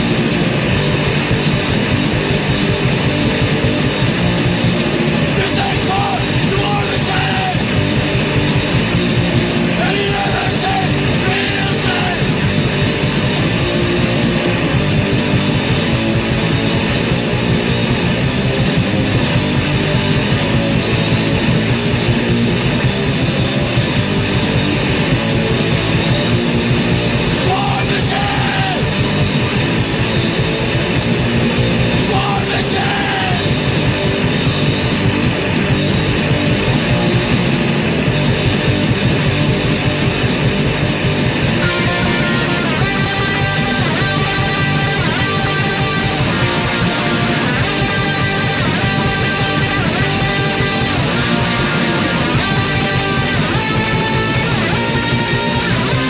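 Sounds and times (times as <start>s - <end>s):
distorted electric guitars: 0.0s - 56.0s
drums: 0.0s - 56.0s
hardcore punk song: 0.0s - 56.0s
shouted vocals: 5.3s - 7.8s, 9.7s - 12.4s, 27.3s - 29.0s, 31.9s - 33.6s.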